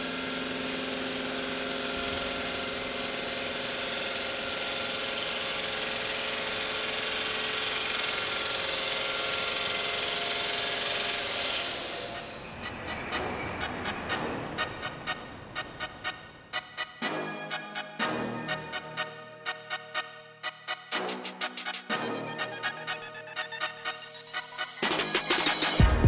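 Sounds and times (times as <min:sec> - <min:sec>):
stone saw cutting with whine: 0:00.0 - 0:13.1
music with ticking beat: 0:12.7 - 0:26.0.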